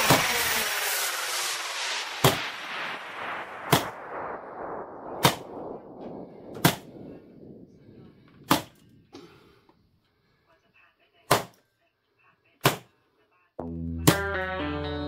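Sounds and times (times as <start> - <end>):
steady hissing noise: 0.0 - 8.7.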